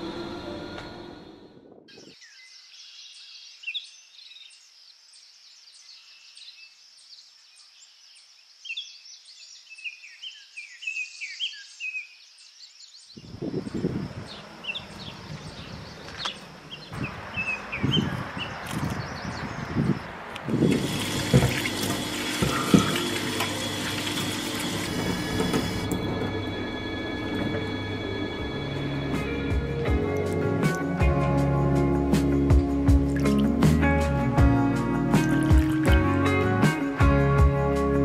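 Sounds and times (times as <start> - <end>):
small birds chirping: 1.9 - 20.7.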